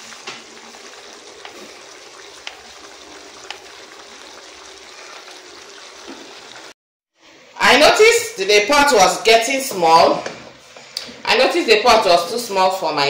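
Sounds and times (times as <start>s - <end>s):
soup bubbling: 0.0s - 6.8s.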